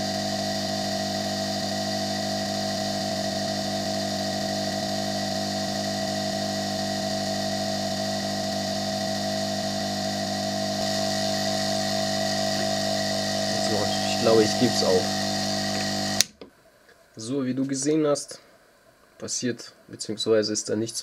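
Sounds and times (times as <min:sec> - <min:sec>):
hot air blower hissing: 0:00.0 - 0:16.3.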